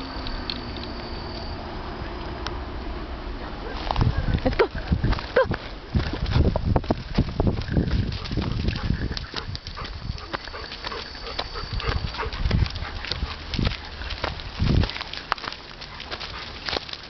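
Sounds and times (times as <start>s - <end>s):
low thumps and rumbling: 3.9s - 17.0s.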